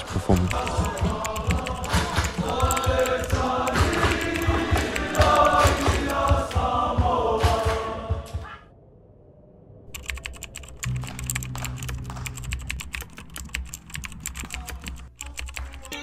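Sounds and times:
keyboard key clicks: 0.0s - 6.4s, 10.0s - 16.0s.

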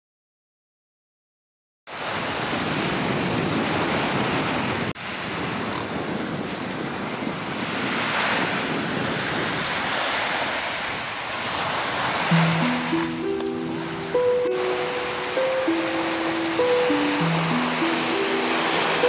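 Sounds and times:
small waves breaking on beach: 1.9s - 19.0s
wind rumbling on microphone: 2.0s - 13.0s.

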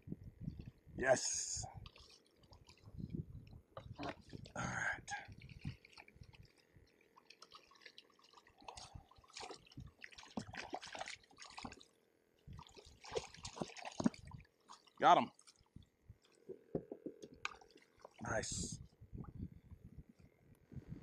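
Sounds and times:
fish splashing at water surface: 5.4s - 15.7s.

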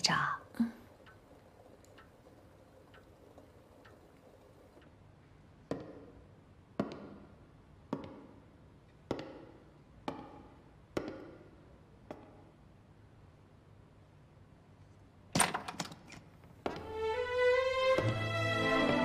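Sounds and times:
faint light ticking: 0.1s - 5.4s.

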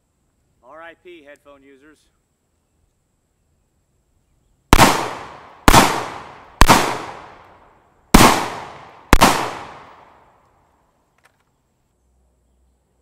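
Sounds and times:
rifle shots with echo: 4.7s - 7.5s, 8.1s - 10.2s.

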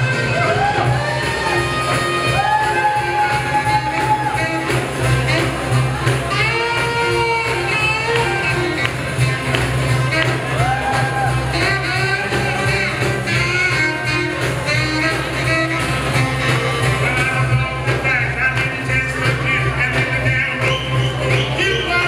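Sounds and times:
rock and roll dance music: 0.0s - 22.0s
person singing: 16.8s - 22.0s.

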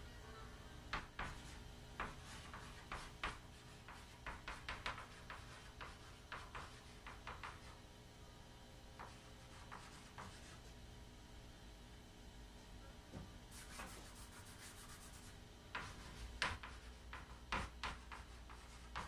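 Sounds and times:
chalk writing on chalkboard: 0.9s - 7.8s, 9.0s - 10.7s, 13.5s - 19.0s.

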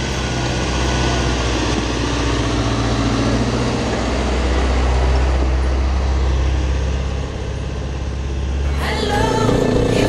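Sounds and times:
truck engine driving past: 0.0s - 10.0s
motorcycle engine running: 9.0s - 10.0s.

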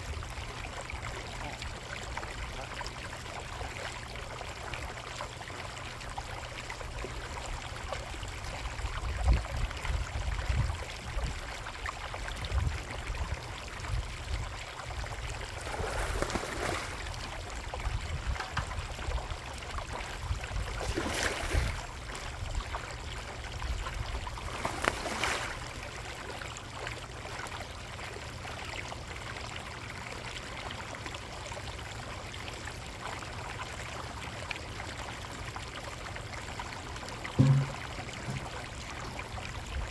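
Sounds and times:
pond water trickling: 0.0s - 39.9s
water swishes: 10.6s - 39.9s
low thumps: 37.4s - 38.6s.

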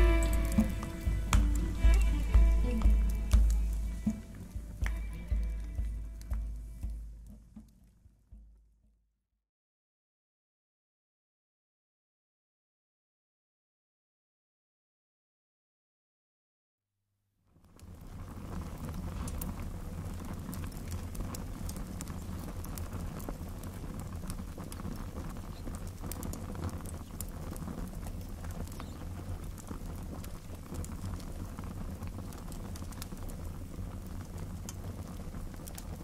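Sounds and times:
campfire crackling: 0.0s - 8.6s, 17.5s - 36.0s
low rumble of burning: 0.0s - 8.8s, 17.5s - 36.0s.

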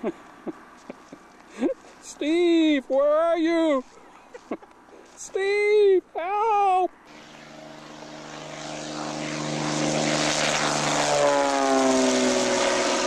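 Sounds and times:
propeller plane passing by: 0.0s - 2.1s, 7.0s - 13.0s.

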